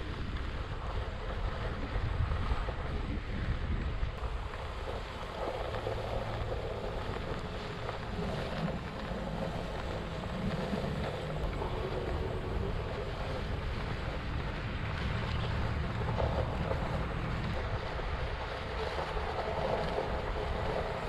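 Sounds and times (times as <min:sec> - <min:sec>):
electric board rolling on grass: 0:00.0 - 0:21.0
wind buffeting microphone: 0:00.0 - 0:21.0.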